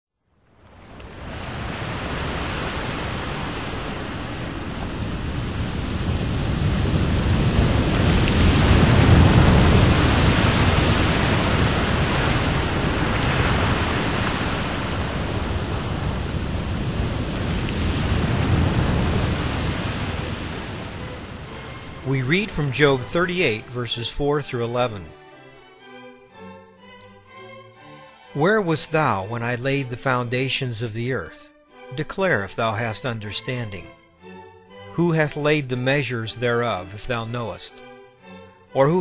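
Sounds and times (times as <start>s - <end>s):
surging water rushing: 0.6s - 25.0s.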